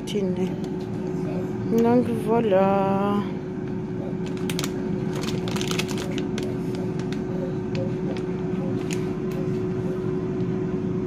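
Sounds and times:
low mechanical hum: 0.0s - 11.0s
plastic bag crinkling: 4.2s - 9.1s.

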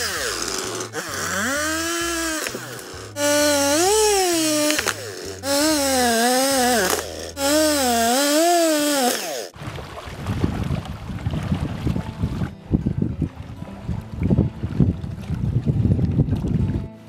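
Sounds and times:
chainsaw cutting wood: 0.0s - 9.6s
lapping water: 9.5s - 12.5s
wind noise on microphone: 9.6s - 17.0s.

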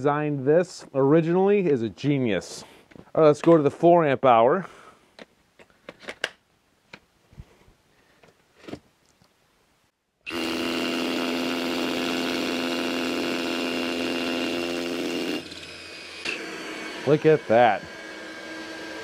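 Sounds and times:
rotary hammer drilling into concrete: 10.3s - 19.0s.

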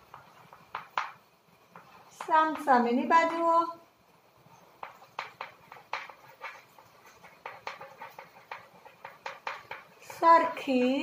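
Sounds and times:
chalk tapping on a chalkboard: 0.0s - 2.7s, 4.7s - 10.6s.

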